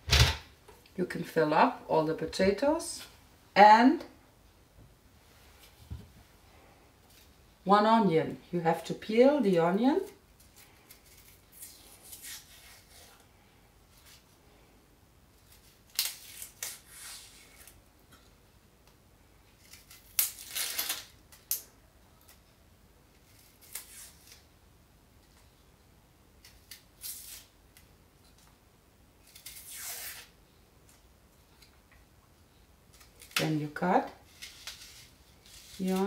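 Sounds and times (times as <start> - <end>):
knife scraping onion skin: 10.4 - 13.2, 15.5 - 17.8, 19.6 - 21.6, 23.2 - 24.4, 26.4 - 27.5, 29.2 - 30.3, 34.3 - 36.0.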